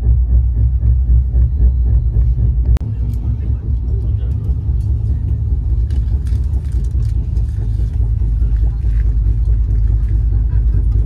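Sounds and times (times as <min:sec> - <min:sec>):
train rumbling inside coach: 0:00.0 - 0:11.0
faint clicks and rattles: 0:02.2 - 0:11.0.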